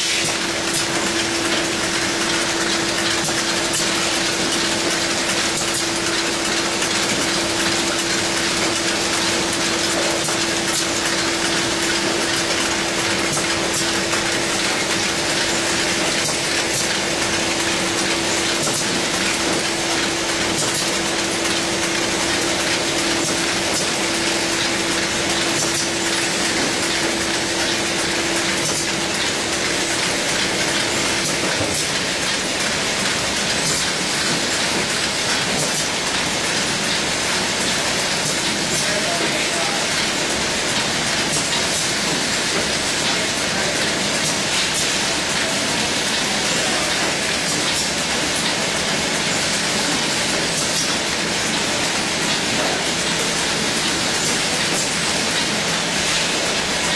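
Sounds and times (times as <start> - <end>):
steady machine hum: 0.0 - 56.9
machine clattering: 0.2 - 56.9.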